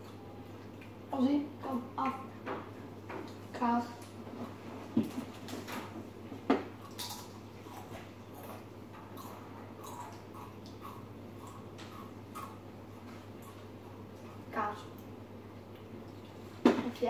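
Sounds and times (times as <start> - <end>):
low room hum: 0.0 - 17.0
chips being chewed: 6.8 - 14.0.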